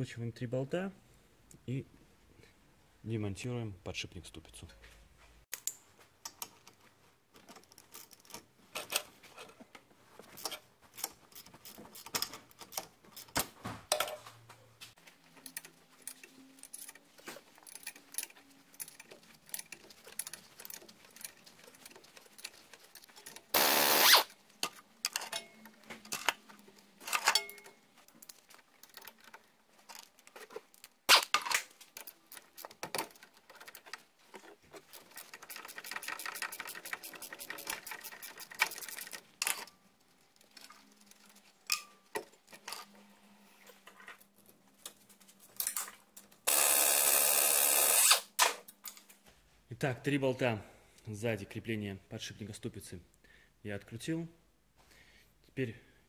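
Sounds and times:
ratchet wrench clicking: 23.6s - 24.3s, 46.5s - 48.3s.

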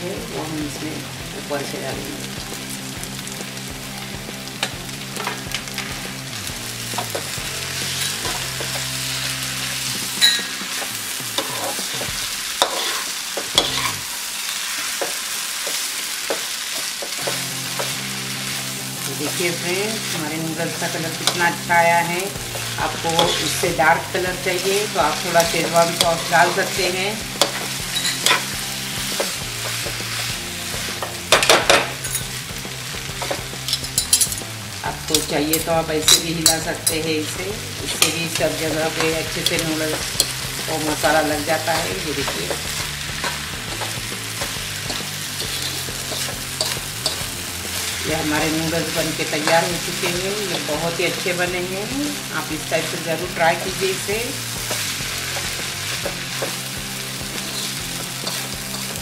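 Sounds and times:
food sizzling in a wok: 0.0s - 59.0s
spatula scraping a wok: 3.8s - 37.0s, 37.6s - 59.0s
utensils clattering on pan: 4.6s - 6.2s, 6.8s - 14.0s, 22.4s - 59.0s.

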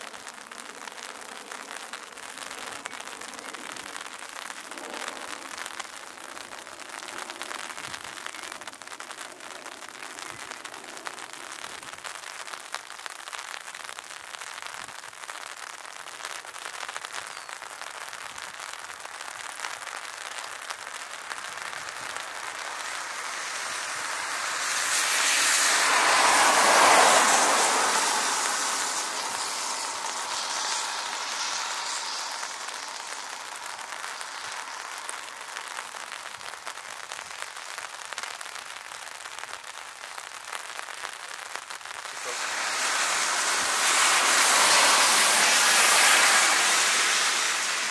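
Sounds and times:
jet aircraft taxiing: 42.2s - 47.9s.

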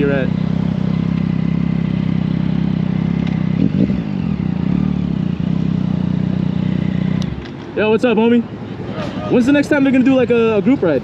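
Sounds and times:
motorcycle engine idling: 0.0s - 8.4s.

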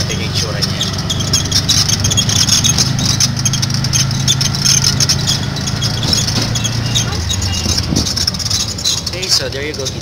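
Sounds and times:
pedicab rattling and clattering: 0.0s - 10.0s
pedicab ride hum: 0.0s - 10.0s.

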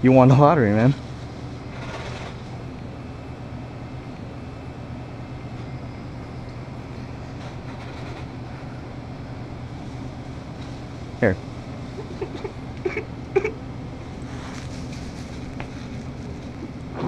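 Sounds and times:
low room hum: 0.0s - 17.0s
faint rustles: 14.0s - 17.0s.

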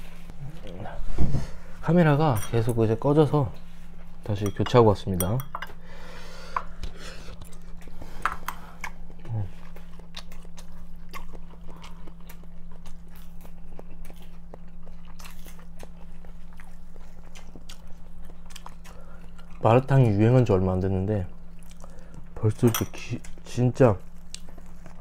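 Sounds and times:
steady low hum: 0.0s - 25.0s
person chewing: 6.7s - 19.7s, 21.5s - 22.4s, 23.2s - 25.0s.

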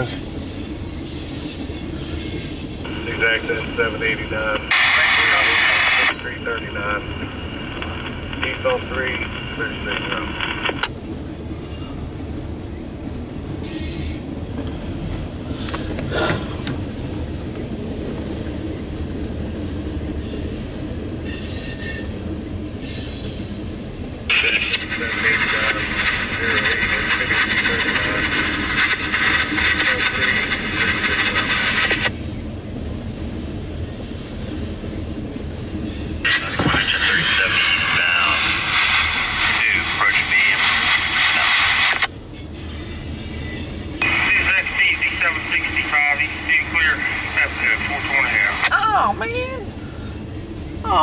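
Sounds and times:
train wheels rumbling on rail: 0.0s - 51.0s
high wheel squeals: 0.2s - 4.2s, 21.2s - 24.2s, 42.3s - 44.0s.

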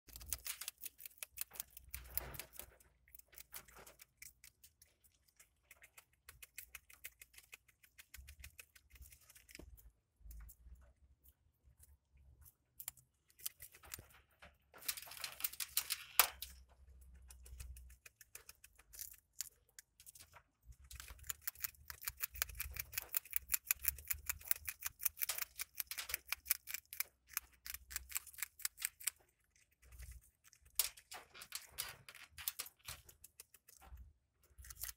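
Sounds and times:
rodents chewing grass: 0.0s - 34.9s.

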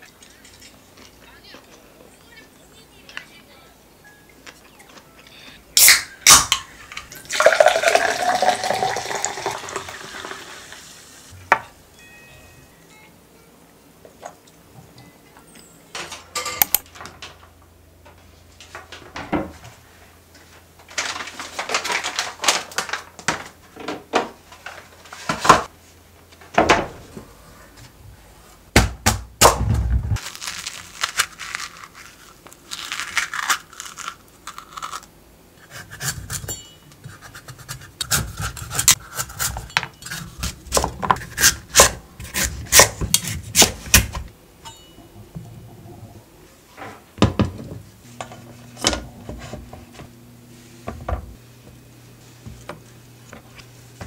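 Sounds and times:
knife scraping and rubbing: 35.6s - 44.2s.

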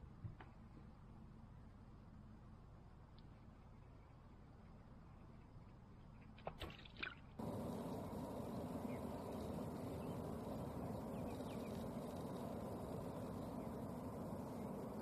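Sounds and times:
steady rushing noise: 7.4s - 15.0s.

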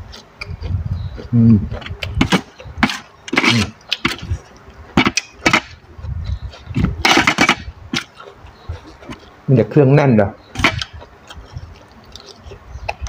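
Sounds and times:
mouth sounds of eating: 0.0s - 2.8s, 5.8s - 7.0s, 8.1s - 9.5s, 10.3s - 13.0s.

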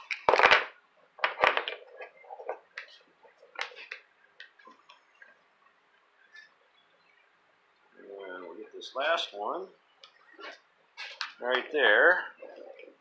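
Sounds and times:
plastic parts clicking and knocking: 0.0s - 5.0s.

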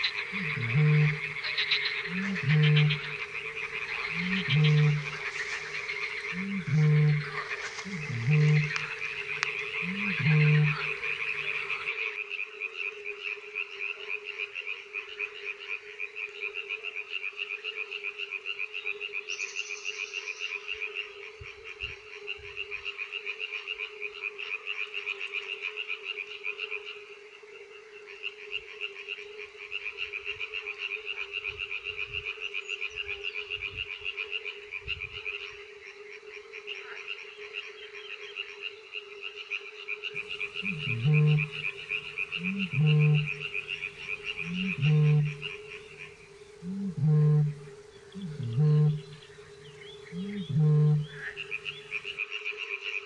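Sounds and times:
bird deep booming call: 0.0s - 11.9s, 40.2s - 52.1s
low hooting: 0.0s - 11.9s, 40.2s - 52.1s
frogs croaking: 0.0s - 53.0s.

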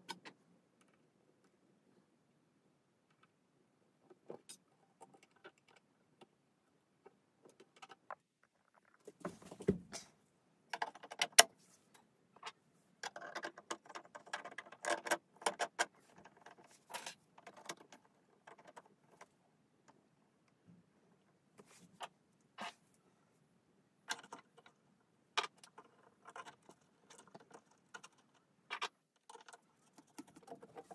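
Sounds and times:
plastic parts clicking and rattling: 10.7s - 20.0s, 24.1s - 30.9s.

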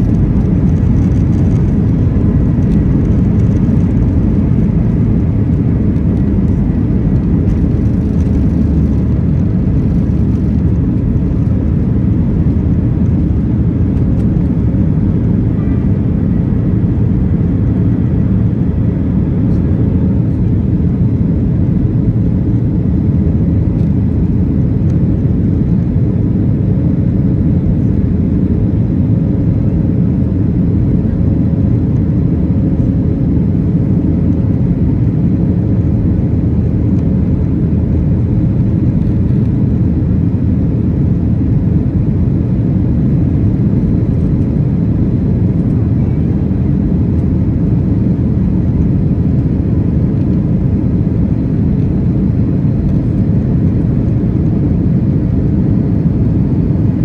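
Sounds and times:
high jet engine whine: 0.0s - 57.0s
jet engine rumble: 0.0s - 57.0s.

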